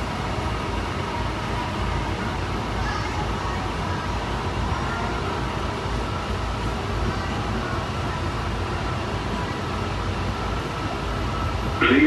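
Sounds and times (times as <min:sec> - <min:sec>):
faint steady whine: 0:00.0 - 0:12.0
train car low rumble: 0:00.0 - 0:12.0.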